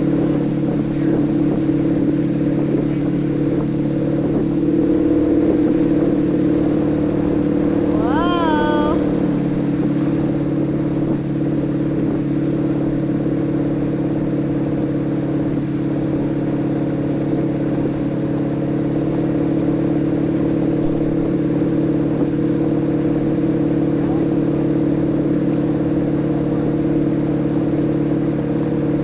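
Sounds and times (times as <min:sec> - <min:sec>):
boat engine humming: 0:00.0 - 0:29.0
rushing water and wind: 0:00.0 - 0:29.0.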